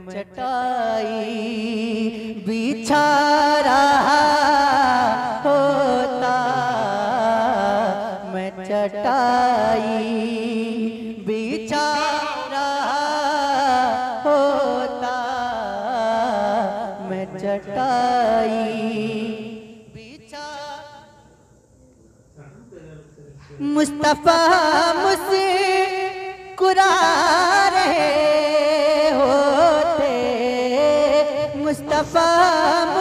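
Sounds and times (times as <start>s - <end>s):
man singing melodically: 11.3s - 19.3s, 26.6s - 33.0s.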